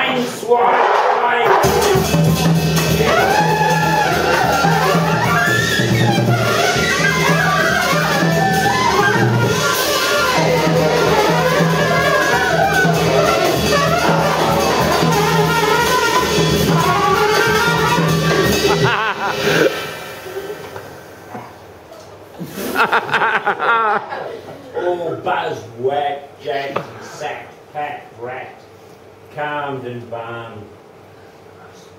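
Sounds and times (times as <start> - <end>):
drums: 0.0 - 24.0
trumpet: 1.4 - 20.2
flute: 1.6 - 20.9
saxophone: 1.6 - 21.7.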